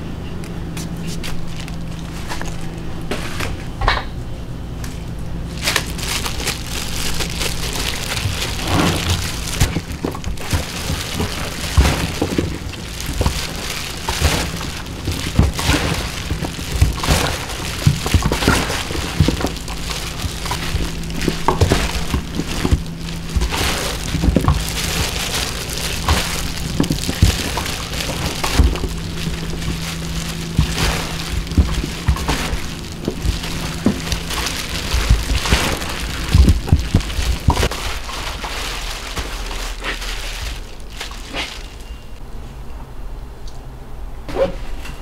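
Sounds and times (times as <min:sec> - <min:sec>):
vegetables being mixed by hand: 0:00.7 - 0:03.7, 0:04.7 - 0:42.2
small snaps and squelches: 0:04.8 - 0:41.8.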